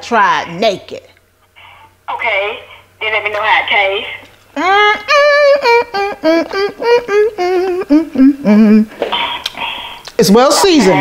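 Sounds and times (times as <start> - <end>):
woman humming a tune: 4.6 - 9.0.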